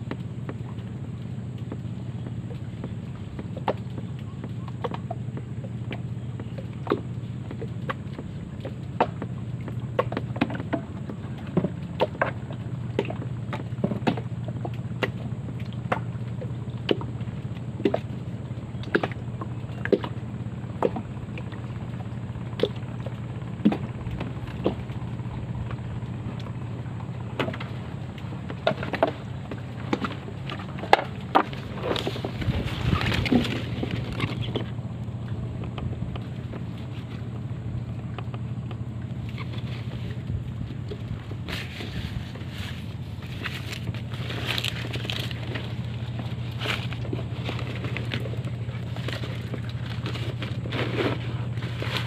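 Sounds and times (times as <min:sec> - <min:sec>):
steady low hum: 0:00.0 - 0:52.0
water lapping against boat hull: 0:00.0 - 0:52.0.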